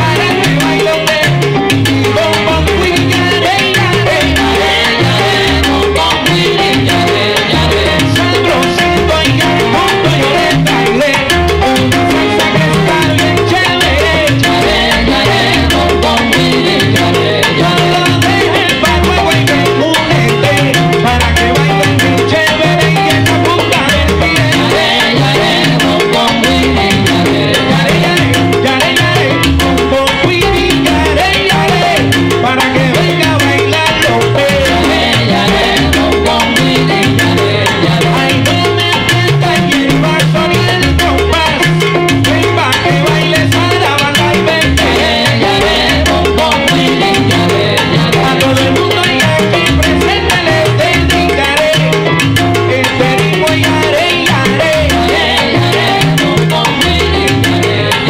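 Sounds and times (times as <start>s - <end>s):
salsa big band playing: 0.0s - 58.0s.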